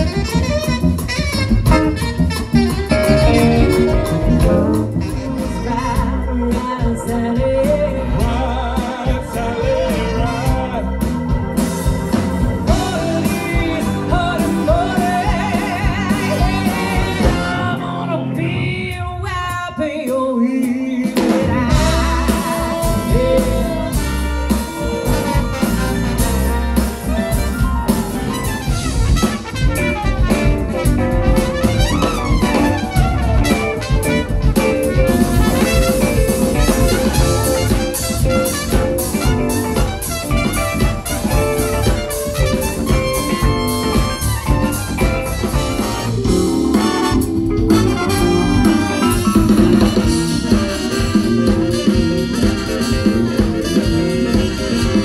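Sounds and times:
trumpets playing: 0:00.0 - 0:06.1, 0:12.5 - 0:18.2, 0:21.7 - 0:55.0
swing big band playing: 0:00.0 - 0:55.0
man singing: 0:05.0 - 0:11.5, 0:12.6 - 0:25.6.

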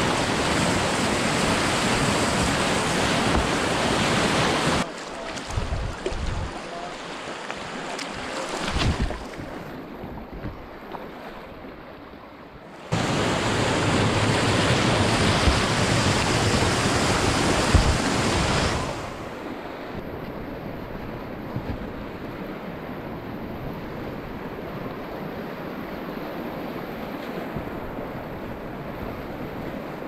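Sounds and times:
river rapids rushing: 0:00.0 - 0:05.4, 0:12.7 - 0:19.4.

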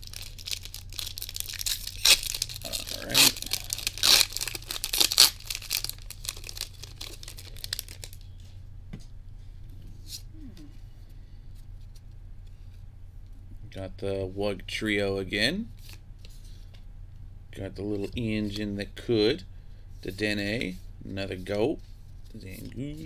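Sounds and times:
foil wrapper tearing and crinkling: 0:00.0 - 0:08.3
steady low hum: 0:00.0 - 0:23.0.

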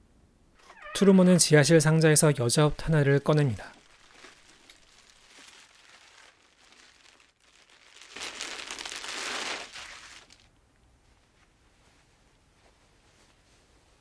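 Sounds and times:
plastic bag crinkling: 0:02.8 - 0:10.5.

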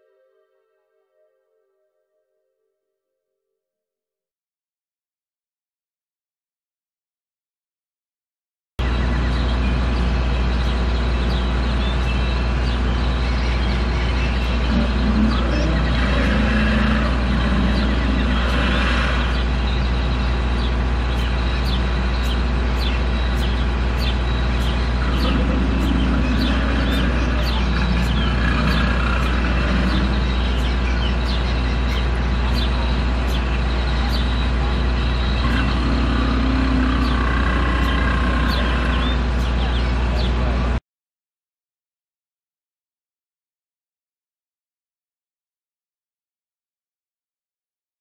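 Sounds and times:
steady low rumble: 0:08.8 - 0:40.8
faint distant voices: 0:24.6 - 0:40.8.

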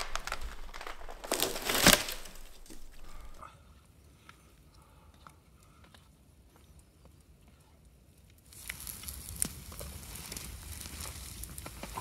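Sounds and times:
footsteps crunching in snow: 0:00.0 - 0:03.4.

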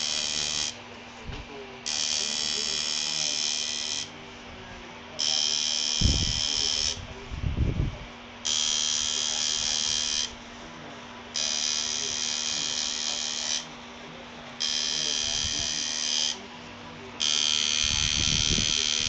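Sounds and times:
tattoo machine buzzing: 0:00.0 - 0:00.8, 0:01.8 - 0:04.2, 0:05.2 - 0:07.2, 0:08.4 - 0:10.5, 0:11.3 - 0:13.8, 0:14.6 - 0:16.4, 0:17.2 - 0:19.0.

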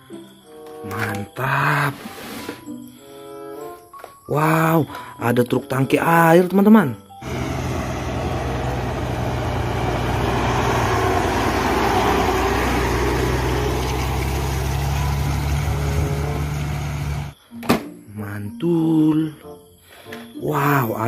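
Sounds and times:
truck diesel engine passing: 0:07.2 - 0:17.4.

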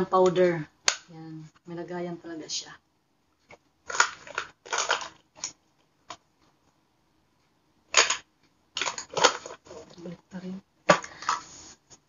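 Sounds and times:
plastic pouch crinkling: 0:03.9 - 0:05.5.

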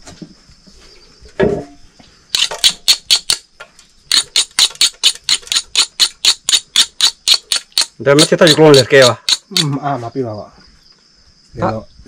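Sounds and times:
pestle pounding in a mortar: 0:04.1 - 0:09.6.

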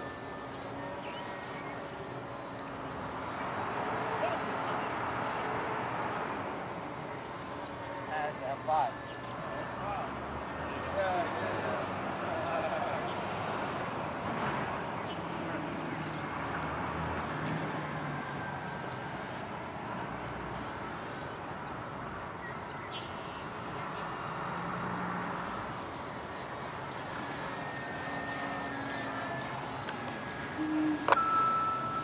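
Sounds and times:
model plane motor buzzing: 0:26.2 - 0:32.0.

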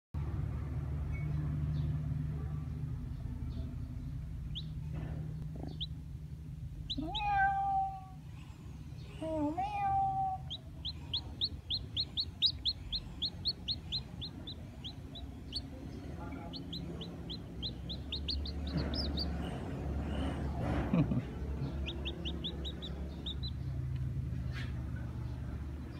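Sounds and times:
steady low hum: 0:00.3 - 0:09.6, 0:10.4 - 0:25.9
chick peeping: 0:03.2 - 0:04.8, 0:05.5 - 0:06.0, 0:06.8 - 0:07.9, 0:10.1 - 0:25.9
kitten meowing: 0:06.9 - 0:08.2, 0:09.5 - 0:10.6.

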